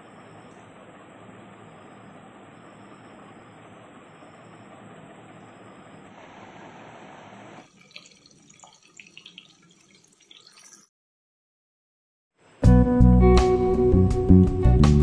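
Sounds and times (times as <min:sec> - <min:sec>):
steady hiss: 0:01.4 - 0:07.6
fish frying in oil crackling: 0:07.6 - 0:10.9.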